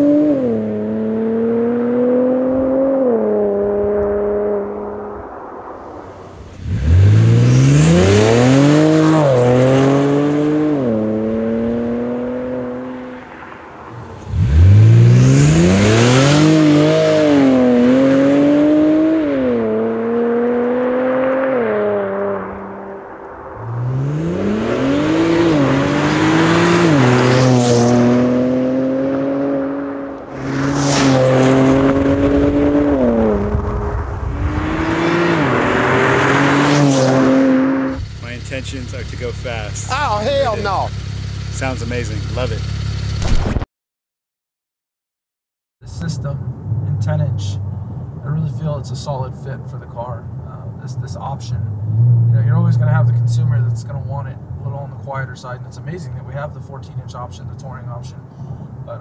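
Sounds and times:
car engine accelerating with upshifts: 0.0s - 5.7s, 6.5s - 43.4s, 50.5s - 58.2s.

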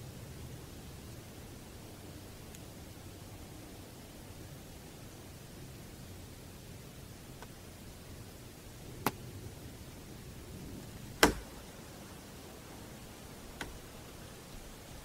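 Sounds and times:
field recorder hiss: 0.0s - 15.0s
sharp knocks: 11.2s - 11.6s.

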